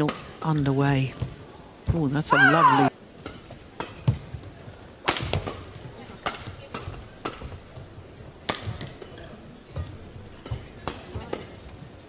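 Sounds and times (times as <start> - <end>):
badminton rackets hitting shuttlecock: 3.2 - 4.2, 5.0 - 7.6.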